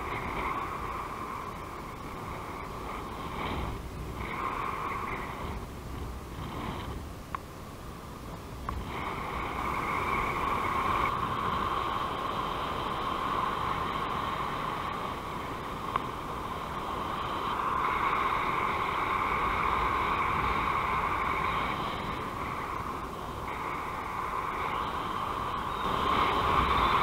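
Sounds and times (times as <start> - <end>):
wind rushing over microphone: 0.0 - 27.0
faint clicks: 6.8 - 7.5.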